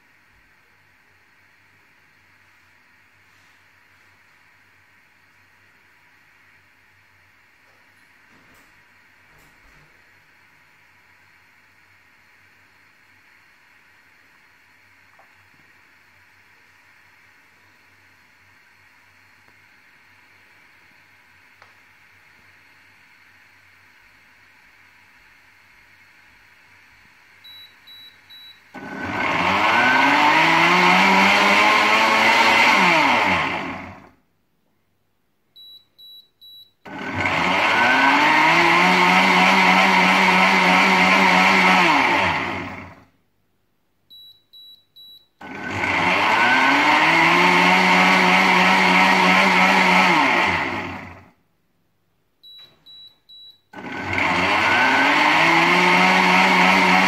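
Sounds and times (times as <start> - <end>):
blender motor churning liquid: 28.8 - 34.1, 36.9 - 43.0, 45.4 - 51.3, 53.8 - 57.0
short high beeps: 52.4 - 53.6.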